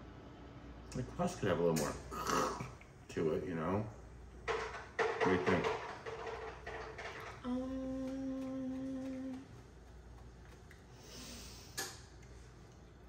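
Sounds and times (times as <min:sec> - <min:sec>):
person humming: 0:07.4 - 0:09.6.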